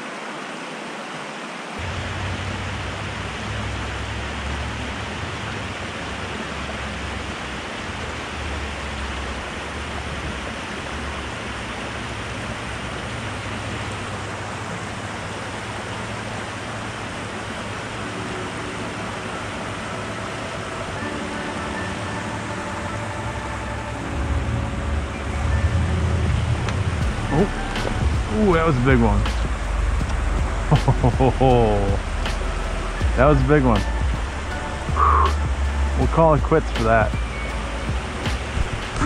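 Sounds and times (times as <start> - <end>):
stream water rushing: 0.0 - 39.0
low rumble: 23.2 - 39.0.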